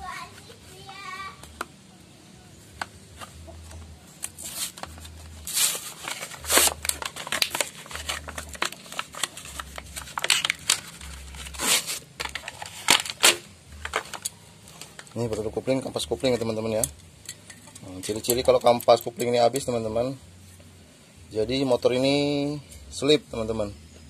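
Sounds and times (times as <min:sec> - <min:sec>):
metal parts clicking and clinking: 0:12.2 - 0:15.2, 0:16.2 - 0:19.8.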